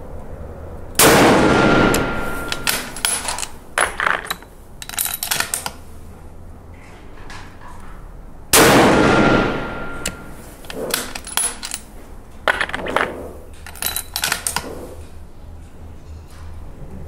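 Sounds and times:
rifle shot with echo: 1.0 - 3.1, 8.6 - 11.0.

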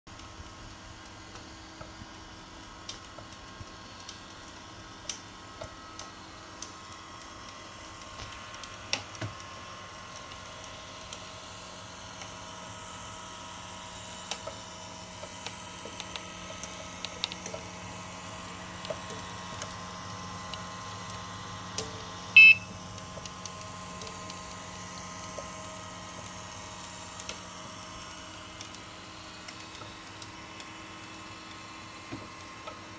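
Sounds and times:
gear motors humming and whining: 0.1 - 32.9
short high-pitched beep: 22.4 - 22.7.

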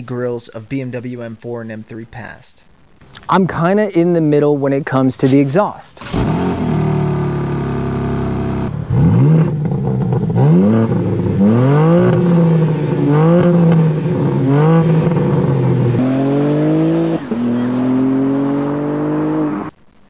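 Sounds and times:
car exhaust idling and revving: 6.0 - 19.7.

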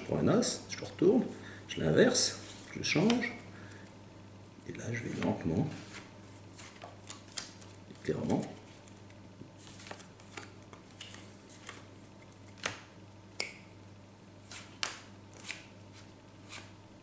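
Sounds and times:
playing cards clicking and snapping: 12.4 - 13.6, 14.5 - 15.7.

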